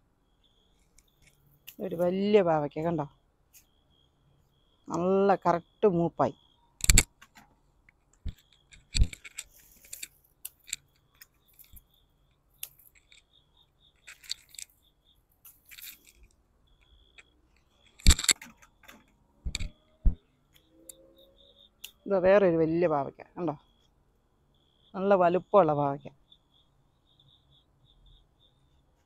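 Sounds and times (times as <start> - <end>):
vines and leaves rustling: 14.0 - 16.3.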